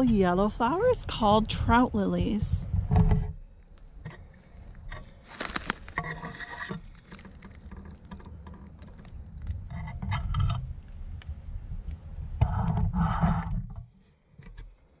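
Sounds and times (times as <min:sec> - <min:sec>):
twigs snapping: 0:04.6 - 0:09.8
footsteps crackling through dry leaves: 0:05.2 - 0:06.2.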